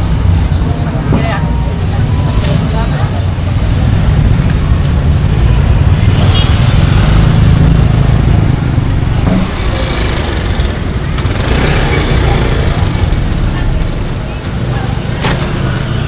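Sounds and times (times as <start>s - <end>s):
motorcycle engine running: 6.6s - 15.1s.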